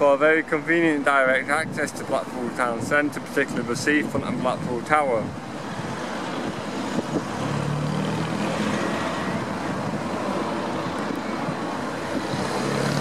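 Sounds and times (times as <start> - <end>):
passing road traffic: 0.0 - 13.0
wind on microphone: 1.2 - 13.0.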